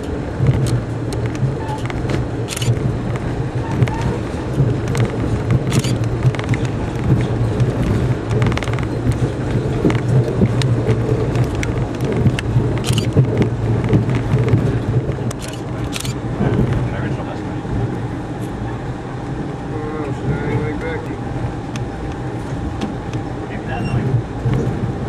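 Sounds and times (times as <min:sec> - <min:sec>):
rumble of train wheels on rail: 0:00.0 - 0:25.0
sharp clicks and ticks: 0:00.4 - 0:04.0, 0:04.8 - 0:16.2.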